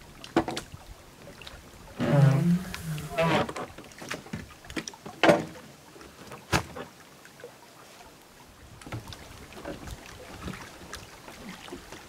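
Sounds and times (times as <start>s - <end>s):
kayak scraping on wooden ramp: 1.9s - 4.5s.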